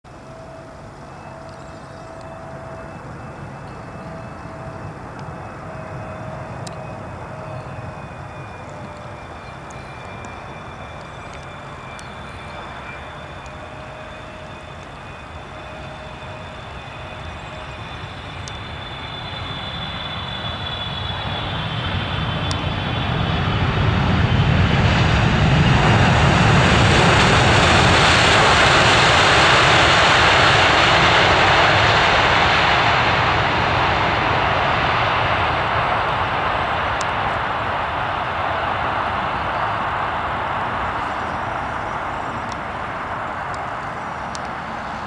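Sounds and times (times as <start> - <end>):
jet engine whine: 0.0 - 45.0.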